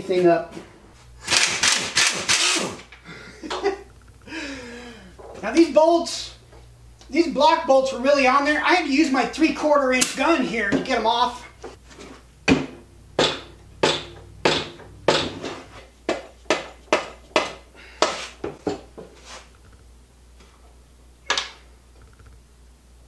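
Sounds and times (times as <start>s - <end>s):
hammer knocking on metal: 12.5s - 17.6s.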